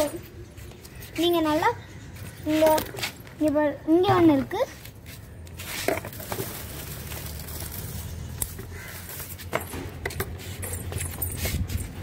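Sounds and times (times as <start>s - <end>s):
rustling leaves: 4.7s - 9.5s.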